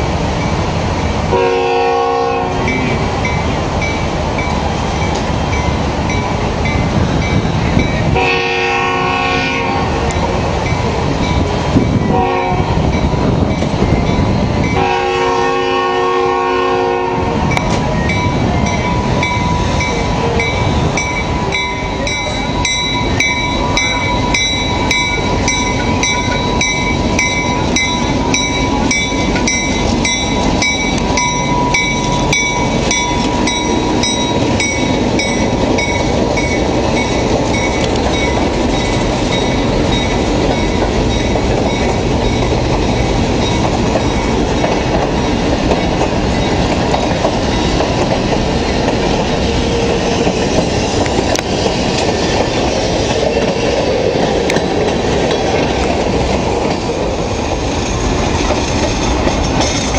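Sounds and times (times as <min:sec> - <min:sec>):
diesel locomotive engine running: 0:00.0 - 0:59.9
train wheels on rails: 0:00.0 - 0:59.9
locomotive bell ringing: 0:08.9 - 0:15.6, 0:17.5 - 0:47.9.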